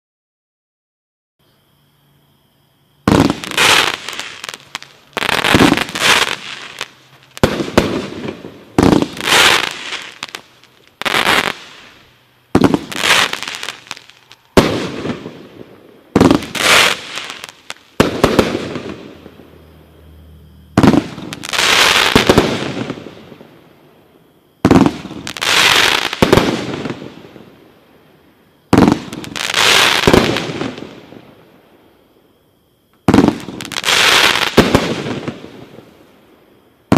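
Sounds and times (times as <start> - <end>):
fireworks bangs: 3.0 - 19.8, 20.7 - 23.7, 24.6 - 27.6, 28.7 - 31.6, 33.0 - 36.2.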